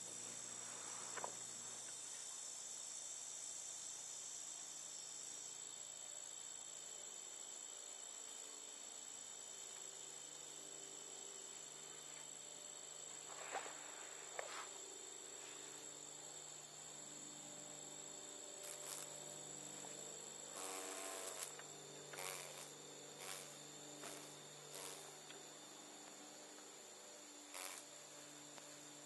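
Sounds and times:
insects trilling: 0:00.0 - 0:29.0
short buzzy bursts: 0:18.6 - 0:25.2, 0:27.5 - 0:27.9.

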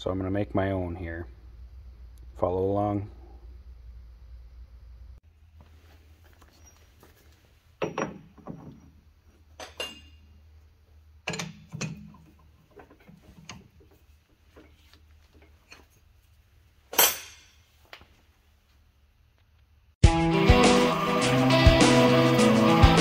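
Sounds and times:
faint low hum: 0:00.0 - 0:07.8
metal clanks and clinks: 0:07.8 - 0:10.4, 0:11.2 - 0:13.7, 0:16.9 - 0:17.7.

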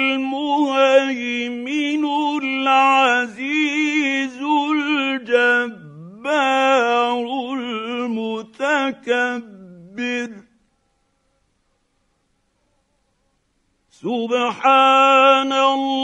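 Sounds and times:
man chanting melodic recitation: 0:00.0 - 0:10.5, 0:14.0 - 0:16.0.

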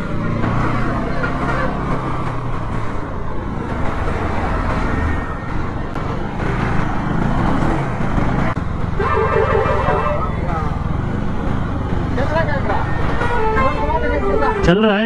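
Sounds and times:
slow traffic rumble: 0:00.0 - 0:15.0
vehicle horn honking: 0:09.0 - 0:10.4, 0:13.2 - 0:15.0.

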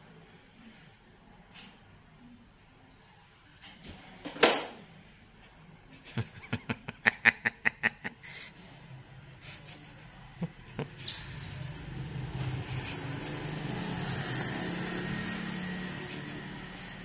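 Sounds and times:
person laughing: 0:05.9 - 0:08.5, 0:09.3 - 0:17.0.

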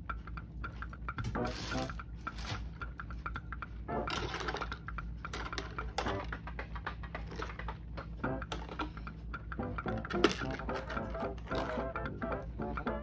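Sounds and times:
plastic parts clicking on table: 0:04.0 - 0:06.5, 0:09.9 - 0:12.0.

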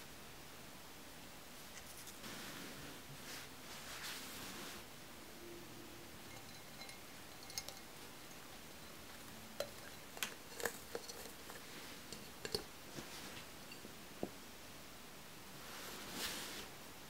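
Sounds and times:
glass jar taps and clicks: 0:06.3 - 0:08.4, 0:12.1 - 0:12.7.

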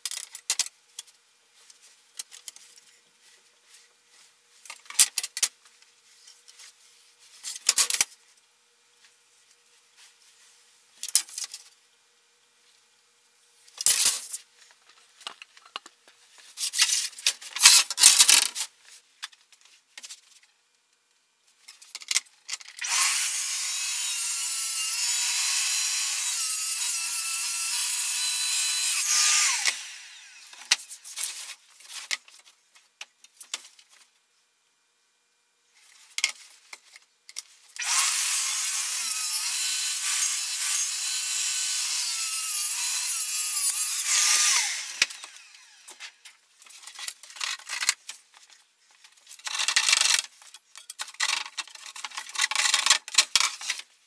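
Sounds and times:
track saw cutting plywood: 0:22.8 - 0:30.8, 0:37.8 - 0:46.0.

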